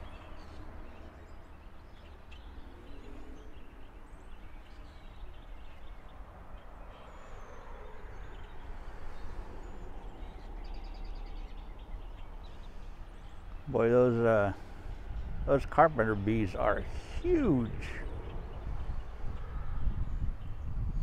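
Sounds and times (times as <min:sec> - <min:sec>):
rapid repeated bird chirps: 0:00.0 - 0:15.3.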